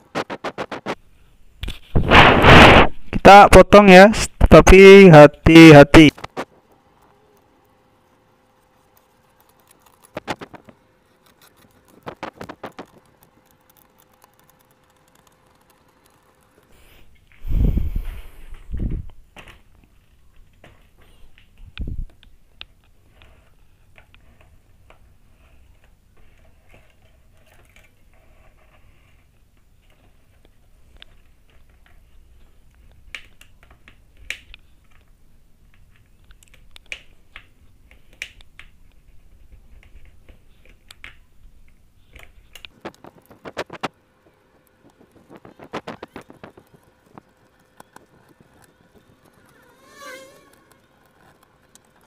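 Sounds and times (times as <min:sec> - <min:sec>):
blade scratching metal frame: 0:49.3 - 0:51.4.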